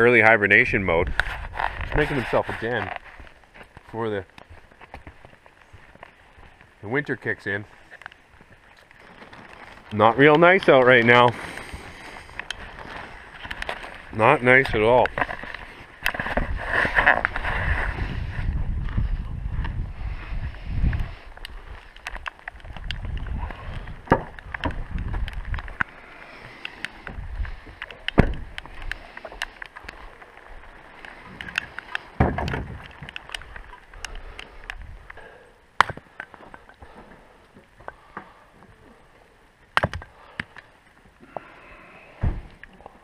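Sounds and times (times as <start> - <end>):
wind rumble on microphone: 0.5 - 2.8, 12.5 - 25.9, 27.0 - 29.1, 31.3 - 35.2.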